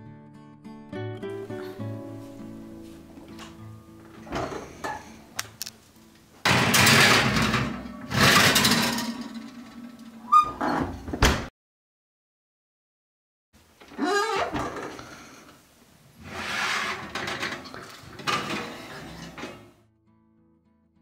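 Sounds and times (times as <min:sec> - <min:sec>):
soft acoustic guitar music: 0:00.0 - 0:06.4, 0:19.8 - 0:21.0
oven door shutting: 0:03.3 - 0:05.6, 0:06.5 - 0:11.5, 0:16.6 - 0:19.7
metal baking tray scraping oven rack: 0:04.2 - 0:05.3, 0:06.5 - 0:11.0, 0:16.2 - 0:19.8.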